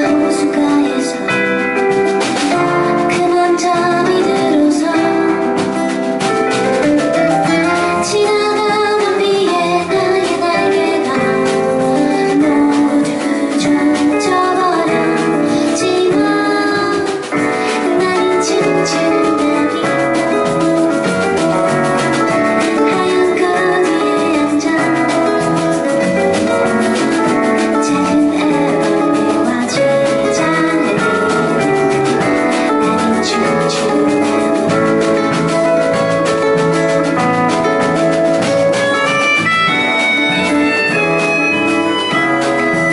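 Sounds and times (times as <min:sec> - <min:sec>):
woman singing: 0:00.0 - 0:06.2, 0:07.4 - 0:35.4
live band playing: 0:00.0 - 0:42.9.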